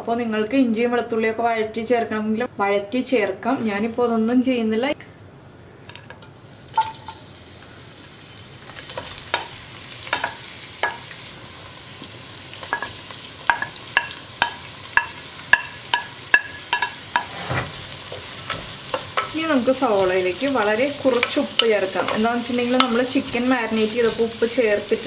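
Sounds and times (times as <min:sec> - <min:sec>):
onions sizzling in oil: 0:06.4 - 0:25.0.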